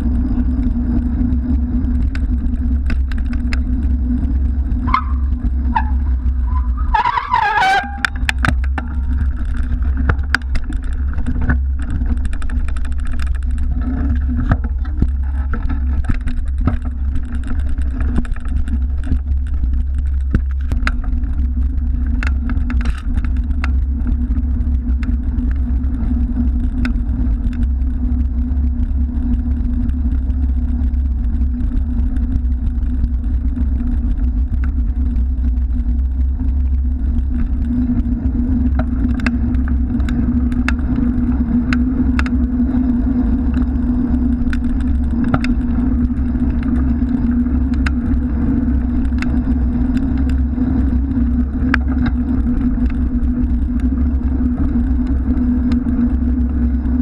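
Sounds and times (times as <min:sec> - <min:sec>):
bicycle clicks and rattles: 0:00.0 - 0:57.0
wind and tyres rumbling: 0:00.0 - 0:57.0.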